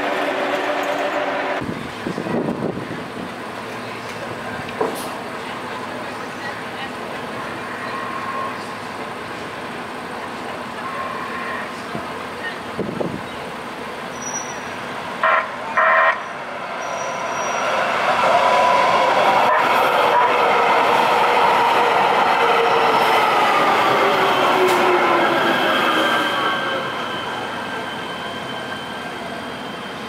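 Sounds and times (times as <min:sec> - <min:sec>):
light rail train passing: 0:00.0 - 0:30.0
train horn blasts: 0:19.4 - 0:20.6.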